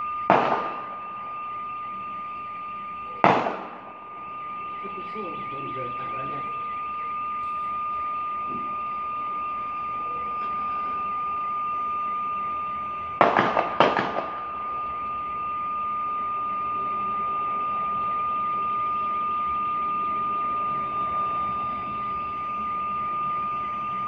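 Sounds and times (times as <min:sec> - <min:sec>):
high-pitched alarm tone: 0:00.0 - 0:24.0
distant gunshots echoing: 0:00.3 - 0:01.1, 0:03.2 - 0:04.2, 0:13.2 - 0:14.6.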